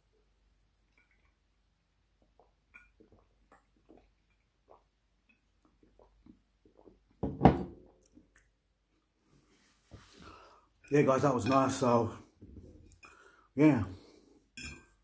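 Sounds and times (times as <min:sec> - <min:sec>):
man gulping a drink: 0:02.1 - 0:07.2
glass bottle set down on wood: 0:07.2 - 0:07.8.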